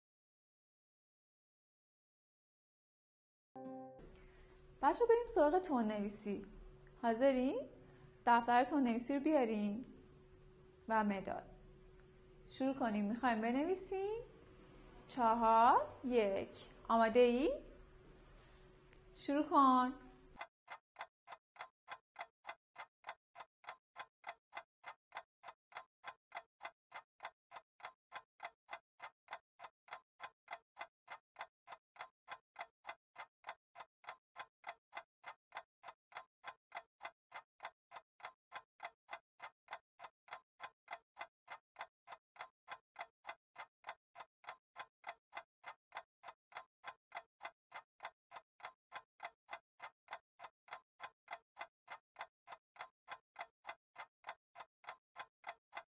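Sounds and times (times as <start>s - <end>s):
clock ticking: 19.9s - 55.9s.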